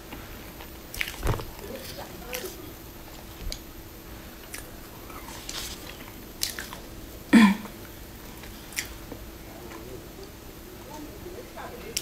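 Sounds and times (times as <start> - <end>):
crisp bites and chewing: 0.9 - 2.6.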